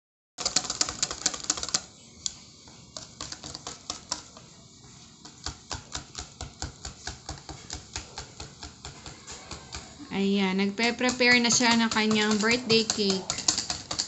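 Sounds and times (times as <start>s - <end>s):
whisk clicking against metal bowl: 3.0s - 4.4s, 5.2s - 10.0s, 10.6s - 14.0s.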